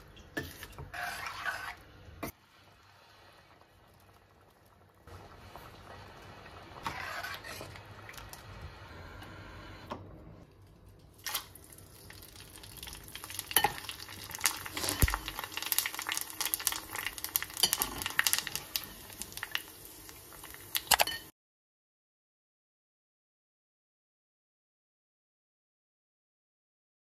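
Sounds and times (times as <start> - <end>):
hot oil sizzling and crackling: 2.3 - 8.5, 11.1 - 21.3.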